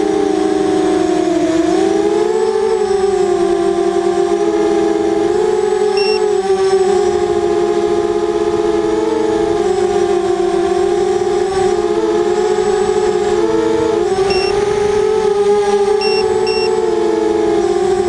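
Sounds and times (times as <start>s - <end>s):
quadcopter motors whining: 0.0s - 18.0s
short high beep: 6.0s - 6.2s, 14.3s - 14.6s, 16.0s - 16.8s.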